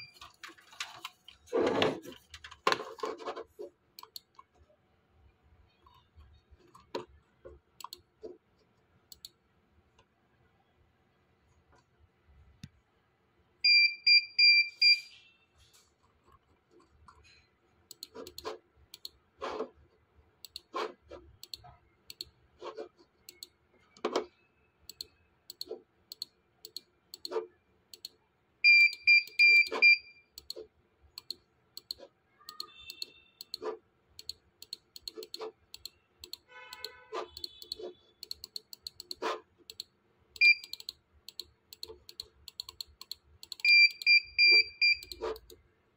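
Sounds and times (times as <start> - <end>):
computer mouse clicking: 2.2 - 4.5, 5.8 - 10.1, 17.9 - 19.8, 20.4 - 24.3, 24.9 - 28.2, 29.2 - 45.6.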